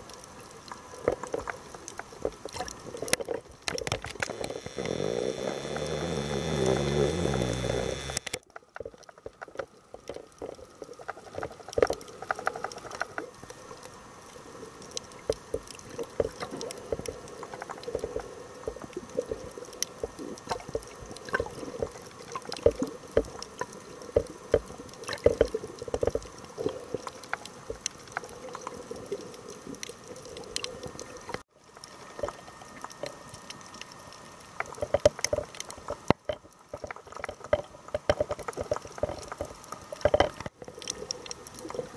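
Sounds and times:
crackle of sharp clicks: 0:00.0 - 0:13.9
bubbling gurgling water: 0:00.0 - 0:41.9.

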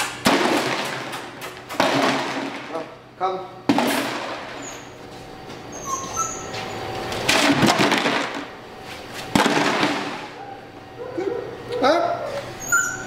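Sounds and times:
high squeaks: 0:05.7 - 0:06.9, 0:12.6 - 0:13.0.

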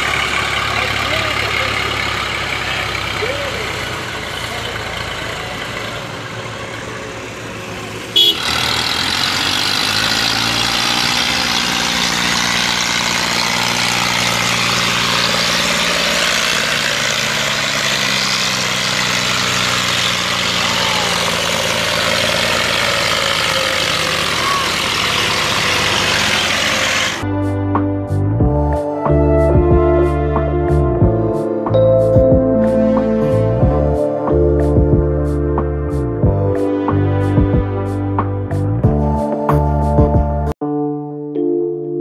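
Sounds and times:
diesel tractor engines under load: 0:00.0 - 0:28.6.

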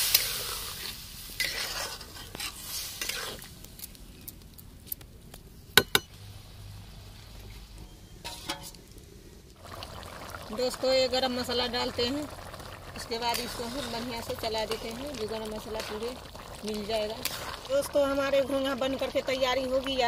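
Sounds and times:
metal spatula scraping pan: 0:01.4 - 0:03.4, 0:08.2 - 0:08.8
pan hissing: 0:08.4 - 0:18.0.

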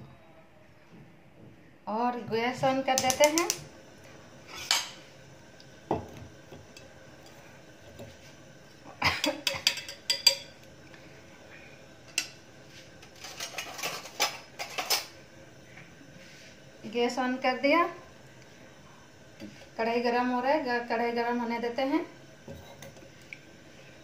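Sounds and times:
gas burner igniter clicks: 0:02.9 - 0:03.7.

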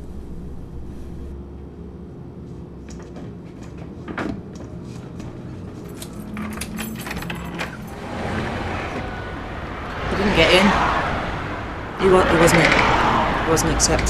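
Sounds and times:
street traffic: 0:00.0 - 0:14.0
keys jangling: 0:05.6 - 0:08.1
door opening: 0:05.9 - 0:09.1.

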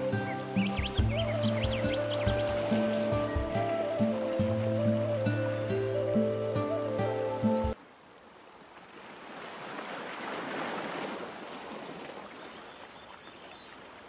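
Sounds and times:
background music: 0:00.0 - 0:07.8.

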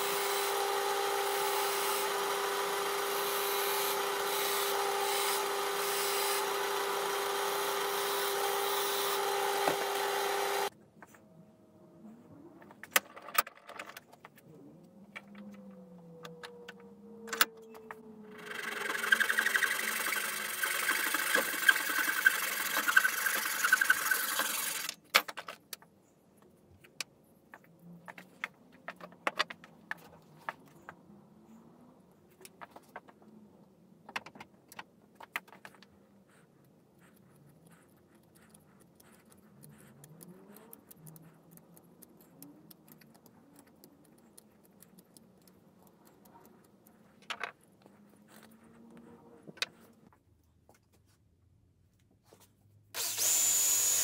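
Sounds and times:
tools and wood clicking: 0:12.6 - 0:31.0, 0:32.4 - 0:50.9
hand saw sawing wood: 0:18.6 - 0:24.9.

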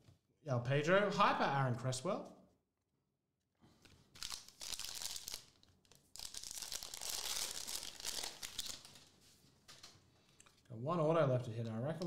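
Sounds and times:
foil wrapper crinkling and tearing: 0:04.1 - 0:09.1.

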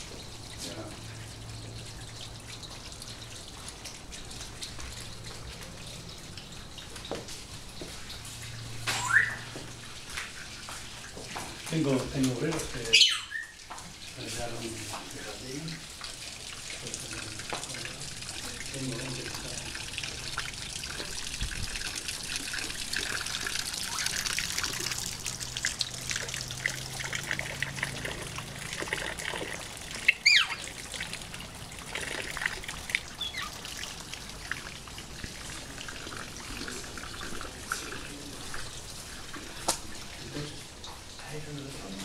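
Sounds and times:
water trickling: 0:00.0 - 0:42.0
bird chirps: 0:08.9 - 0:09.5, 0:12.9 - 0:13.6, 0:30.1 - 0:30.6, 0:33.2 - 0:33.6.

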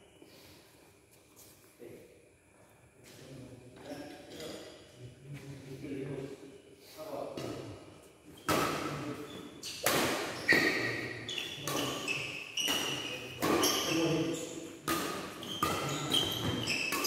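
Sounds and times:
shoes squeaking on court: 0:08.3 - 0:17.0
racket hitting shuttlecock: 0:09.8 - 0:10.9, 0:12.6 - 0:14.0, 0:14.8 - 0:17.0.

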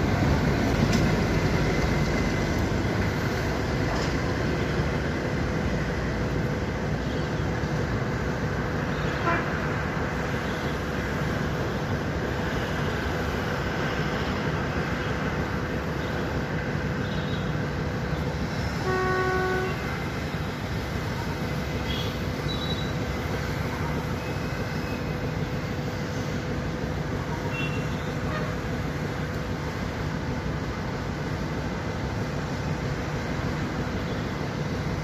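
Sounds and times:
railcar rumbling: 0:00.0 - 0:35.0
train horn toot: 0:09.0 - 0:09.7, 0:18.8 - 0:20.0.

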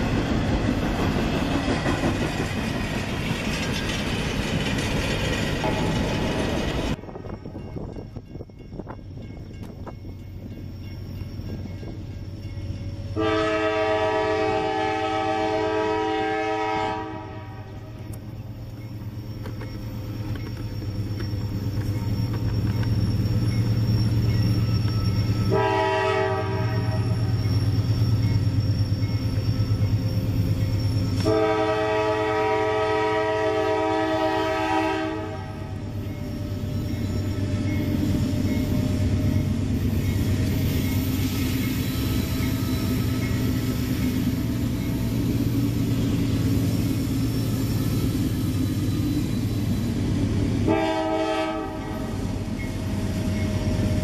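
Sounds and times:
diesel locomotive rumble: 0:00.0 - 0:54.0
train air horn blasts: 0:13.1 - 0:18.1, 0:25.4 - 0:27.4, 0:31.2 - 0:36.0, 0:50.6 - 0:52.4.

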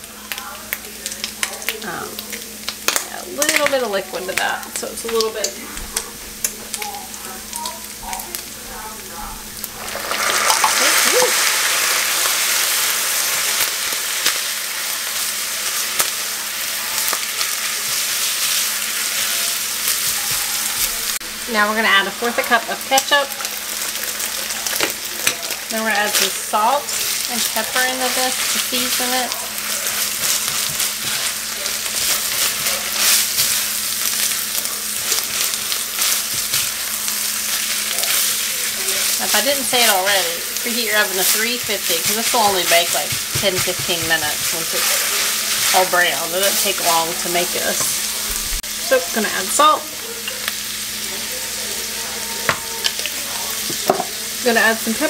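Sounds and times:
meat sizzling in a skillet: 0:00.0 - 0:55.0
spatula stirring: 0:23.4 - 0:49.6
wooden spoon scraping: 0:26.0 - 0:48.2.

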